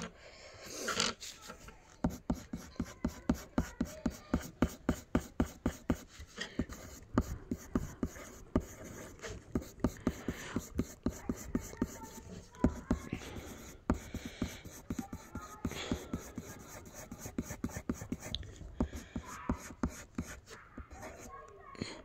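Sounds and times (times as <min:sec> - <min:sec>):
pencil scratching on paper: 0:00.6 - 0:21.5.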